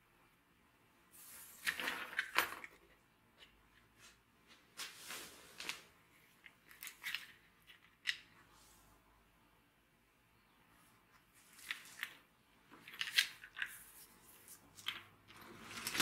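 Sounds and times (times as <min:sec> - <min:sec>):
handling rustles and clicks: 0:01.3 - 0:08.4, 0:11.2 - 0:16.0.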